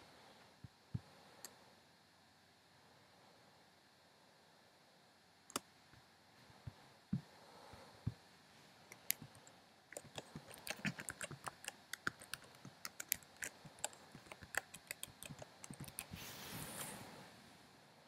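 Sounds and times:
typing on a keyboard: 10.0s - 16.2s.

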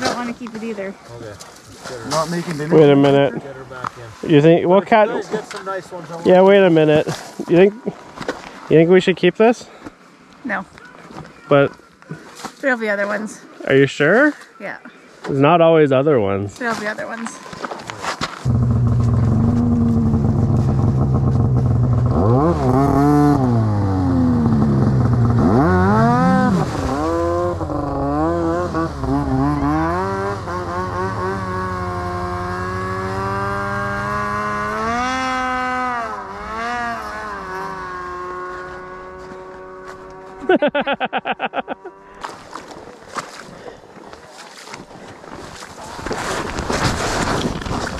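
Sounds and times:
snowmobile engine revving: 18.4s - 42.2s.

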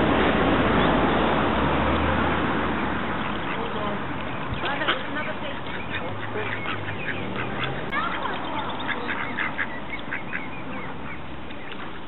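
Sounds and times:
ducklings peeping: 2.8s - 12.0s.

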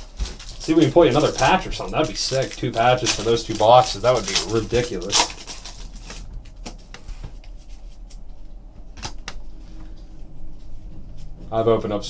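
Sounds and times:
foil pack crinkling: 0.0s - 8.4s.

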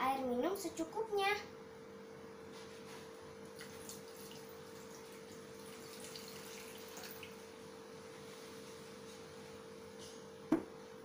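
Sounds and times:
water trickling and splashing: 3.6s - 7.4s.

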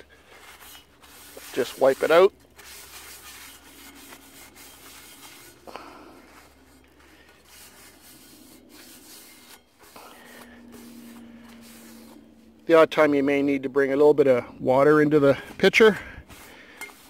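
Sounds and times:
paper towel wiping frying pan: 0.3s - 6.8s, 7.4s - 12.5s, 16.3s - 17.0s.

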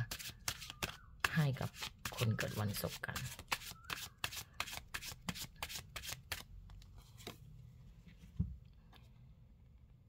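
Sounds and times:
cards being shuffled: 0.1s - 7.5s.

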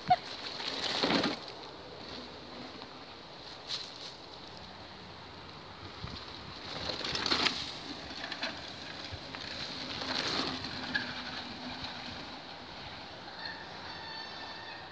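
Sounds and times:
bike tyres rolling on dirt: 0.0s - 13.4s.

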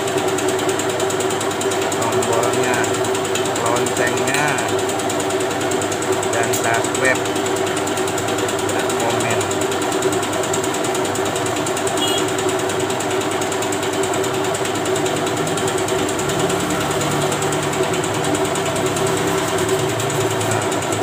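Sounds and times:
engine drone: 11.8s - 21.0s.

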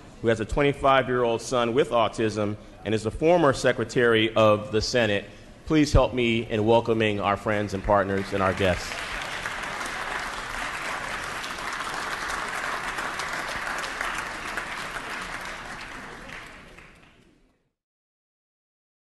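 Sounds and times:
crowd applauding: 7.5s - 17.4s.

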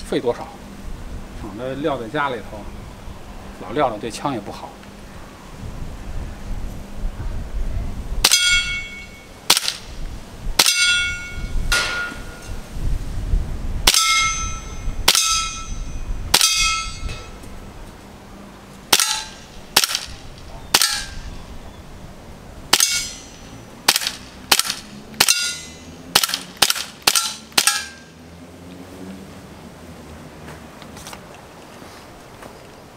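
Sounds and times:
metallic ring: 8.3s - 9.4s, 10.6s - 12.6s, 13.9s - 17.4s, 22.8s - 23.6s, 25.2s - 26.0s, 27.1s - 28.2s
airsoft pistol shots: 9.5s - 9.8s, 18.9s - 21.2s, 22.7s - 23.2s, 23.9s - 25.6s, 26.2s - 28.0s.

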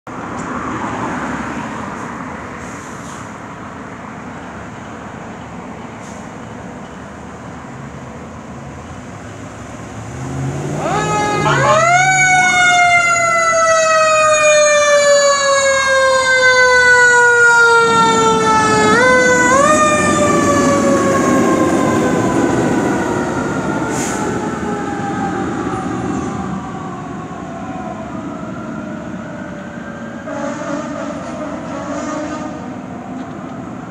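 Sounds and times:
truck engine rumbling: 1.9s - 32.0s
fire engine siren wailing: 9.5s - 33.9s.

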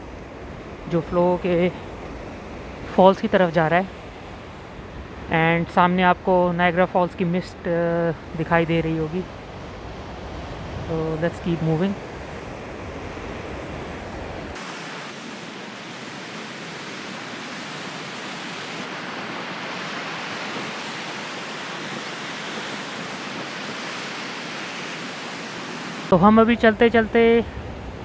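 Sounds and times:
river rapids rushing: 8.1s - 26.8s.

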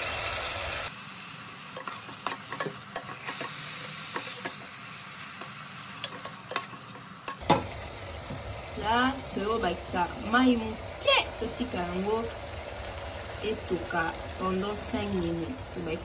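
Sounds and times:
vegetables sizzling in oil: 0.0s - 16.0s
metal spoon scraping a pot: 1.7s - 4.8s, 5.4s - 7.4s.

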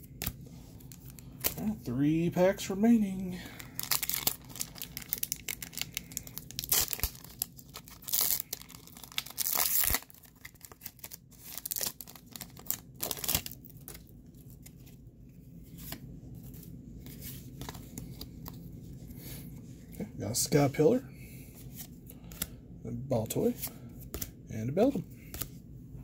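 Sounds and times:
cards rustling: 3.5s - 15.0s, 15.6s - 19.4s, 23.2s - 25.6s
foil wrapper tearing and crinkling: 3.6s - 14.1s.

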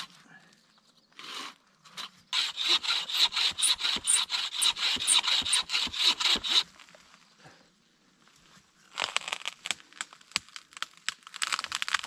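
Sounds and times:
hand saw cutting wood: 2.4s - 6.7s.

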